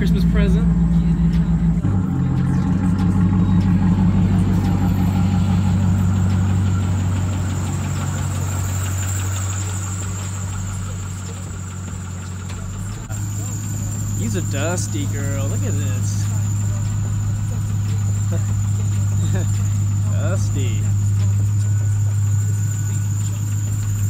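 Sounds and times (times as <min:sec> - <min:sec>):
car engine idling: 0:00.0 - 0:24.0
high-pitched belt squeal: 0:12.9 - 0:24.0.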